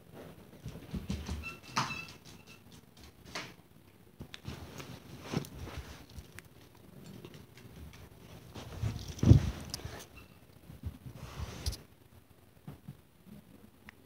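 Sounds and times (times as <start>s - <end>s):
dog footfalls on floor: 0.6s - 2.1s.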